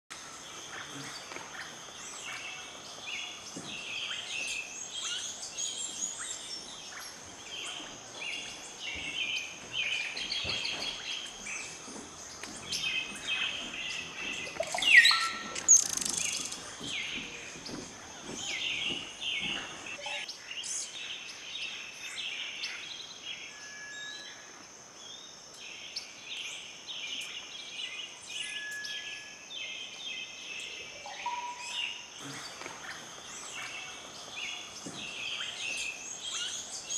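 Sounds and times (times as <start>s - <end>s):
birds chirping: 0.1s - 23.5s, 29.6s - 36.9s
bird call rising in pitch: 14.5s - 16.4s, 31.0s - 32.0s.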